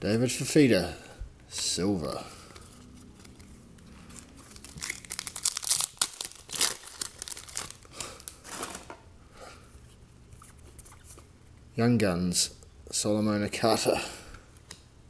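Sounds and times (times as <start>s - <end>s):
foil wrapper tearing and crinkling: 3.2s - 8.9s.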